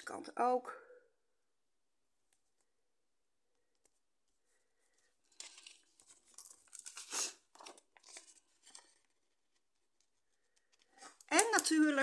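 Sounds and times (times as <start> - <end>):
paper rustling and scraping: 5.0 - 11.2.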